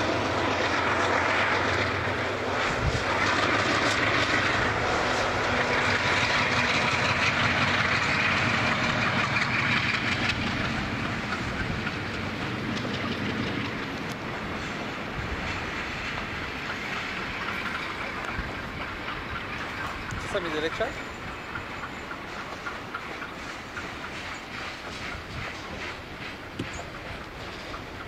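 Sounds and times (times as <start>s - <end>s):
diesel locomotive engine hum: 0.0s - 28.0s
train wheels on rails: 0.0s - 28.0s.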